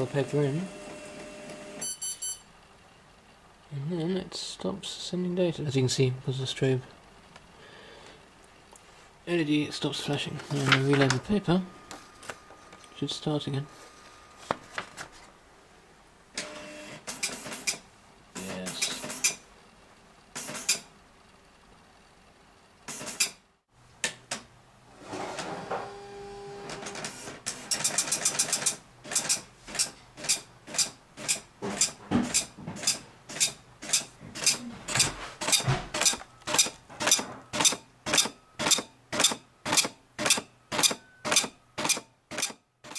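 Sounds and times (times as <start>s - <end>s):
printer paper feed: 0.0s - 1.8s, 10.4s - 12.6s, 16.4s - 17.8s, 18.4s - 19.4s, 20.4s - 20.8s, 22.9s - 23.4s, 25.0s - 42.9s.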